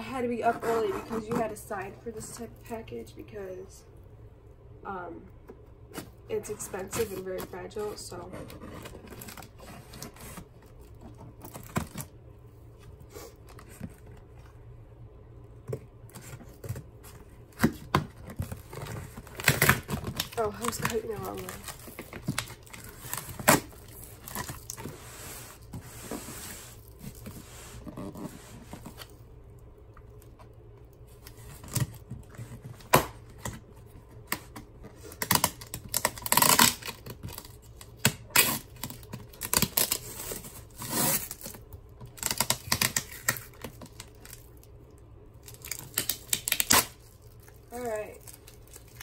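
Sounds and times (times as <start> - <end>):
tape tearing from cardboard box: 17.6 - 24.9, 35.2 - 41.6, 42.2 - 44.4, 45.5 - 47.0.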